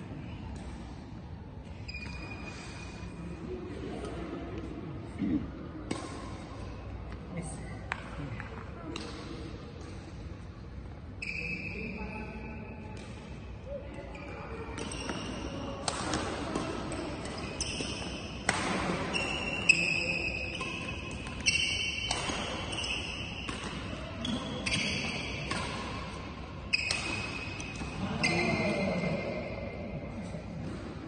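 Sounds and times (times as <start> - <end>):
shoes squeaking on court floor: 1.8 - 3.0, 17.2 - 18.5, 19.1 - 26.1, 26.7 - 29.0
racket striking shuttlecock: 5.8 - 6.5, 14.8 - 28.0.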